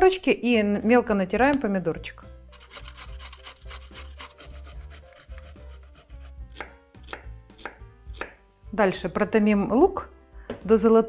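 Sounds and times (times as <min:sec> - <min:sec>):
carrot rasping on metal grater: 0:02.5 - 0:06.6
knife chopping on cutting board: 0:02.6 - 0:08.4.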